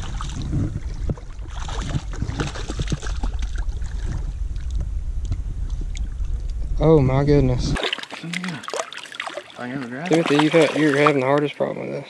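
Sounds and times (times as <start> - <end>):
fish thrashing water: 0.0 - 4.2, 7.8 - 11.6
stream water sloshing: 0.0 - 4.7, 7.8 - 12.0
wind buffeting microphone: 0.0 - 7.8
person wading: 7.8 - 11.6.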